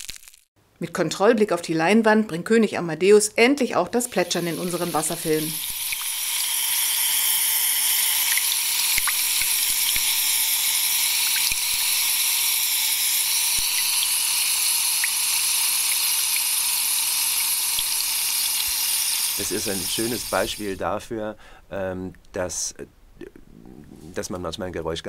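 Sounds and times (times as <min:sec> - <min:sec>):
aerosol spray bubbling in water: 0:04.2 - 0:07.1, 0:07.9 - 0:20.7.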